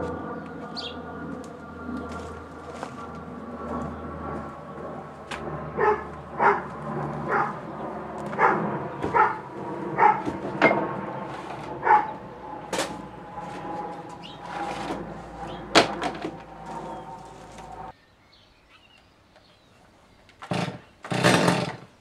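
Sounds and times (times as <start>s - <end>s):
background hum: 0.0s - 22.0s
dog barking: 5.8s - 6.7s, 7.3s - 7.6s, 8.3s - 9.4s, 10.0s - 10.3s, 11.8s - 12.2s.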